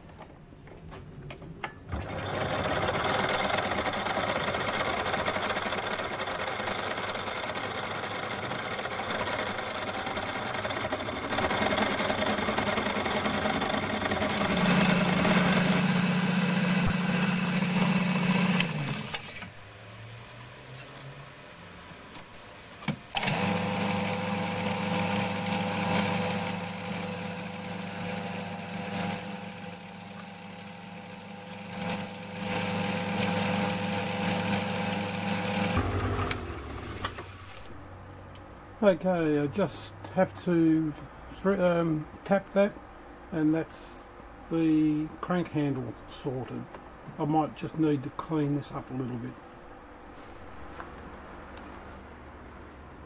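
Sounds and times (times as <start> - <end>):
lathe motor running: 1.9 - 21.0, 21.8 - 37.8
milling machine cutting metal: 2.0 - 19.7, 23.1 - 37.7.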